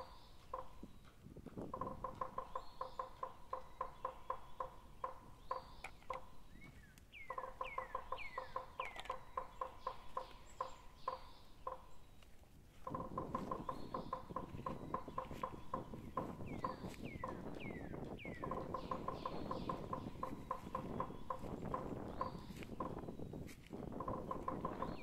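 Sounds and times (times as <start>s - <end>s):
high falling calls: 12.8s - 25.0s.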